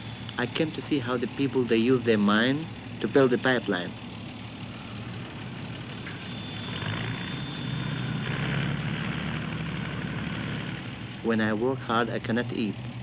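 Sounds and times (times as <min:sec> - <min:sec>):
faint high whine: 0:00.0 - 0:12.8
diesel engine running: 0:00.0 - 0:13.0.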